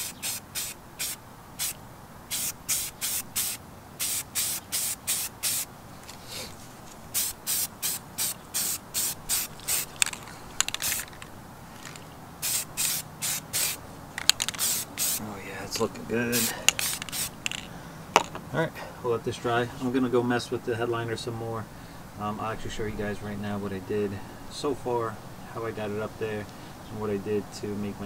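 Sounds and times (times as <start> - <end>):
spray paint can hissing: 0.0 - 5.7, 7.1 - 15.2, 16.3 - 17.7.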